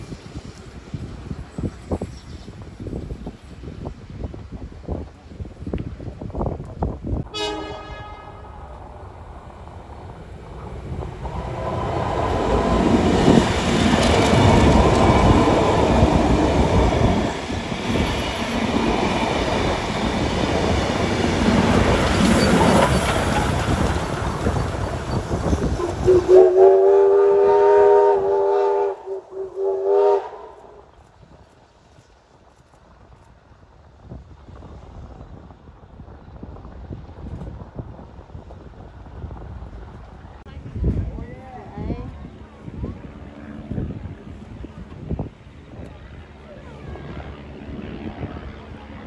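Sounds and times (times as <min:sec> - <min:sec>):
steam train rumbling past: 0:00.0 - 0:49.0
locomotive whistle blasts: 0:07.3 - 0:08.4, 0:26.0 - 0:30.6.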